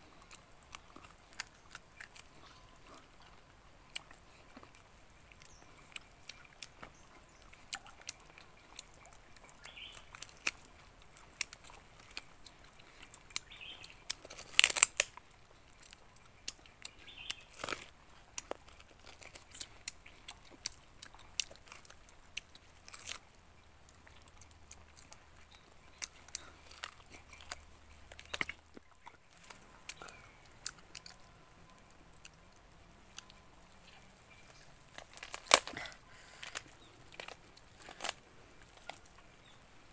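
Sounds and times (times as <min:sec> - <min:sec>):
people chewing chicken: 0:00.0 - 0:39.9
loud crunch: 0:05.4 - 0:23.3, 0:33.2 - 0:39.6.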